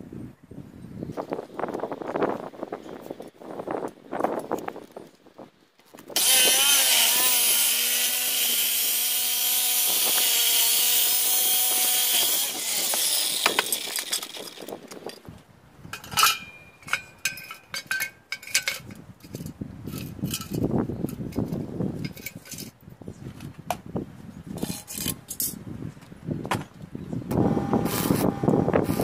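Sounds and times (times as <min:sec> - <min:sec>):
saw blade spinning down: 0:06.2 - 0:14.6
miter saw cutting metal: 0:06.2 - 0:14.8, 0:27.4 - 0:29.0
metal pieces clinking: 0:12.9 - 0:15.2, 0:15.9 - 0:22.8, 0:24.6 - 0:25.6.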